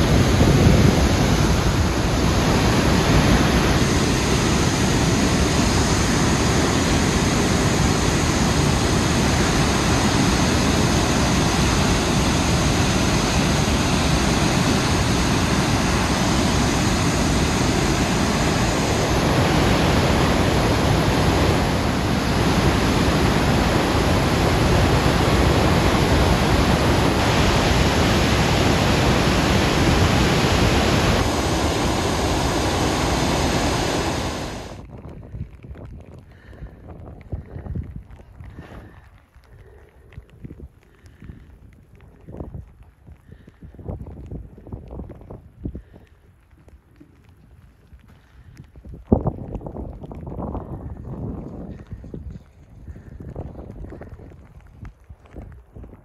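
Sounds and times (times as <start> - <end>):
waterfall rushing: 0.0 - 34.8.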